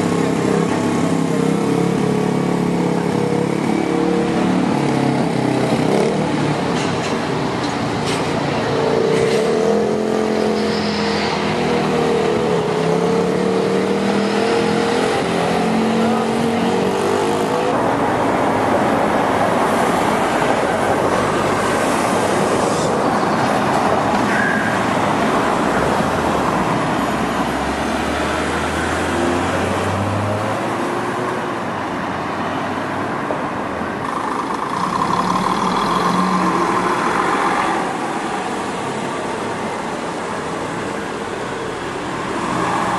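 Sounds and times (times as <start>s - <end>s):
bus diesel engine: 0.0s - 42.9s
traffic and tyre noise: 0.0s - 42.9s
coach engine: 33.9s - 42.5s.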